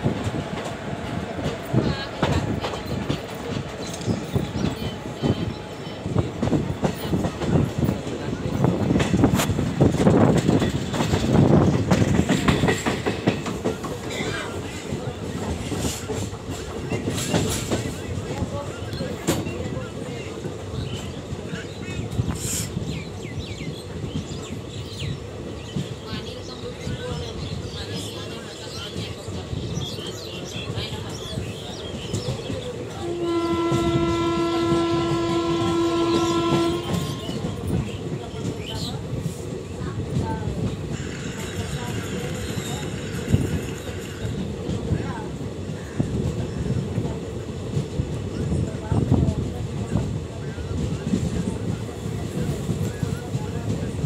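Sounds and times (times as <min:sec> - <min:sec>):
train wheels rumbling: 0:00.0 - 0:54.0
train horn long note: 0:33.0 - 0:37.4.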